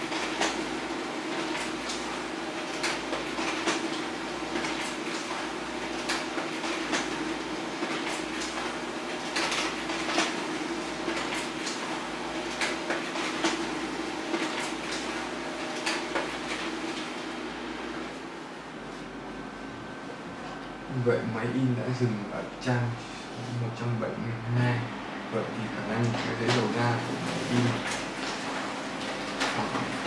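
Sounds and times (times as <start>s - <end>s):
paper feed clicks and rattles: 0.0s - 17.2s, 25.9s - 30.0s.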